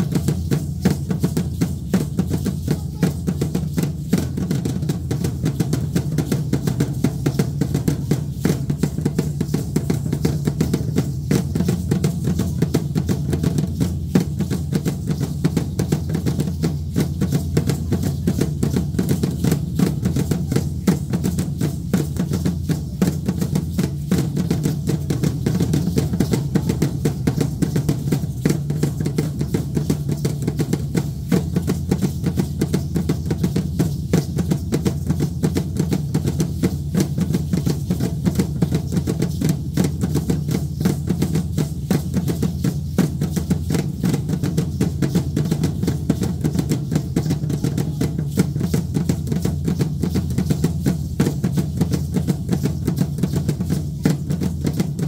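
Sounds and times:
large drum beating fast: 0:00.0 - 0:55.0.

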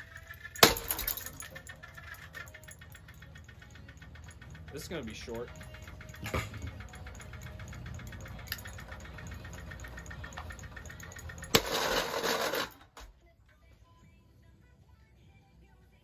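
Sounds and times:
ceiling fan motor humming: 0:00.0 - 0:12.8
harsh clatter: 0:00.0 - 0:13.1.

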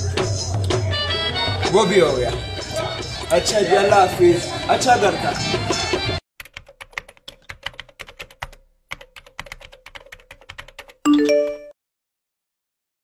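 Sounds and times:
phone notification chime: 0:11.1 - 0:11.8.

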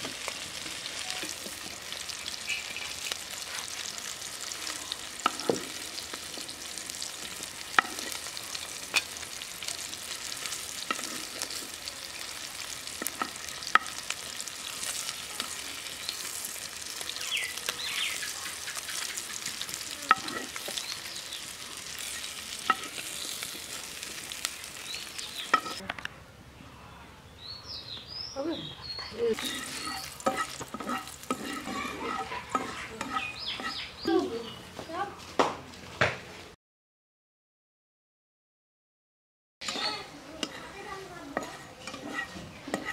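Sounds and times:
fish sizzling in a frying pan: 0:00.0 - 0:25.8, 0:29.3 - 0:34.2, 0:39.6 - 0:42.9
metal spatula clinking on pan: 0:29.4 - 0:33.8, 0:41.4 - 0:42.9.

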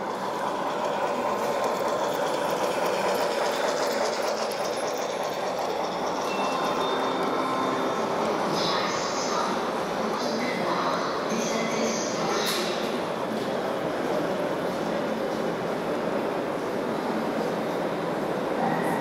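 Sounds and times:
model train motor whirring: 0:00.0 - 0:08.3
wheels rolling on rails: 0:00.0 - 0:10.6.

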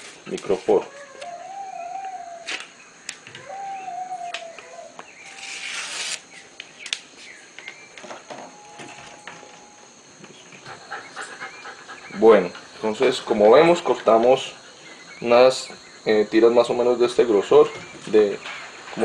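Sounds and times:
puppy whining: 0:00.8 - 0:02.6, 0:03.3 - 0:05.6
tape ripping off roll: 0:05.3 - 0:06.3.

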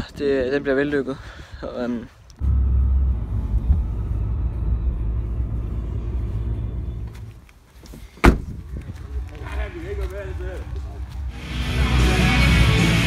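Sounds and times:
car engine idling: 0:02.4 - 0:07.5.

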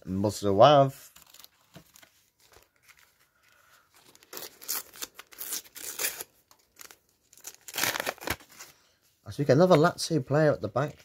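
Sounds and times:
plastic wrapper crinkling and tearing: 0:01.1 - 0:08.7.

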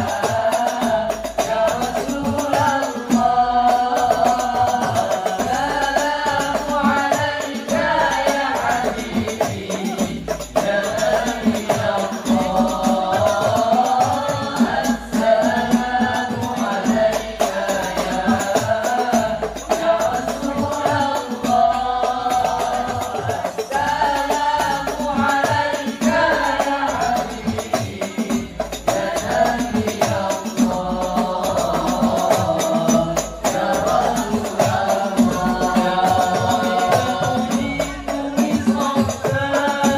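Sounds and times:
hand-struck frame drums: 0:00.0 - 0:39.9
young men singing a devotional chant: 0:00.0 - 0:39.9.

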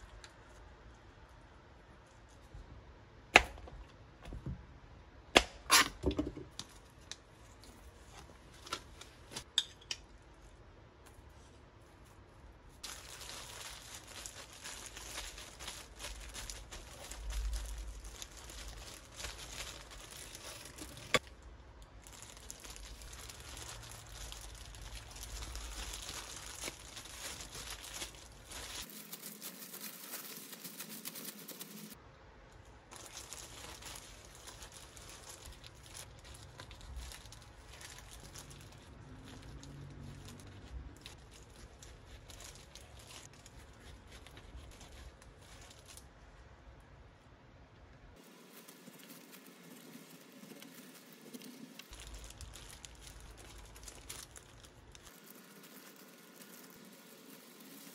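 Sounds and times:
plastic gloves crinkling: 0:05.7 - 0:32.0, 0:32.6 - 0:46.5, 0:48.1 - 0:57.9.

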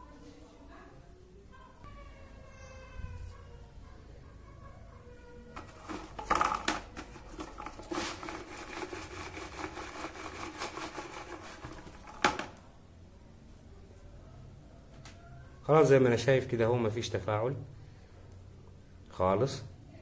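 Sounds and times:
rod clicking and scraping in bucket: 0:05.6 - 0:12.5.

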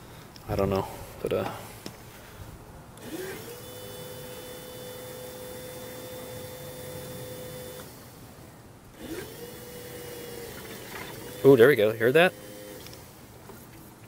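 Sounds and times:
electric pump whining and humming: 0:03.0 - 0:14.0.

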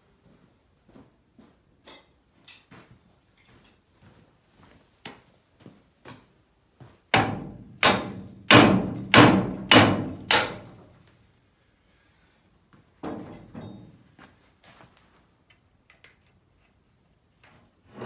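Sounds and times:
hard knocks on metal wheel: 0:07.1 - 0:10.8.

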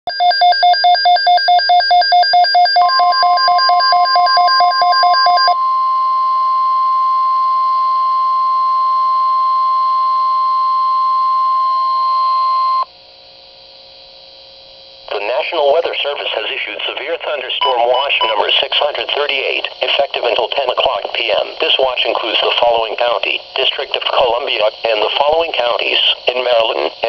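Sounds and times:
shrill pulsing beep: 0:00.1 - 0:12.9
faint hum: 0:00.2 - 0:27.0
broadcast voice: 0:15.1 - 0:27.0
steady warning tone: 0:15.1 - 0:27.0.

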